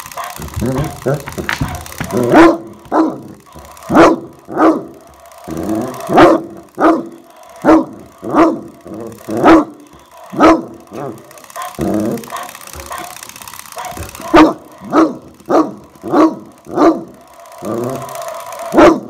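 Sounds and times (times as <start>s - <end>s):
dog barking deeply: 0.6s - 3.3s, 3.9s - 4.9s, 5.8s - 8.7s, 10.4s - 13.1s, 13.8s - 17.1s, 18.8s - 19.0s.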